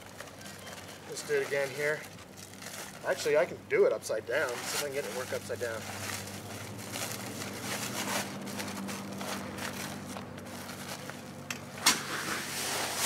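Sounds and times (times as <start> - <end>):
shovel scraping sand: 11.8 - 13.0.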